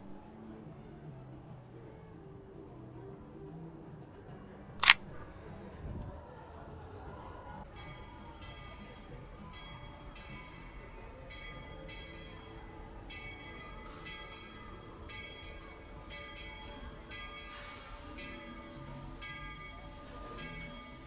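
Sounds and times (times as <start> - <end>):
locomotive bell ringing: 7.7 - 21.0
steam hiss: 12.8 - 21.0.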